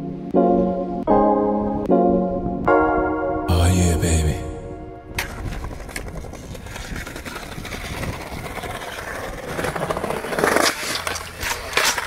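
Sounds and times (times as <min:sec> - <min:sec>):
skateboard wheels rolling on paving: 0:05.2 - 0:12.0.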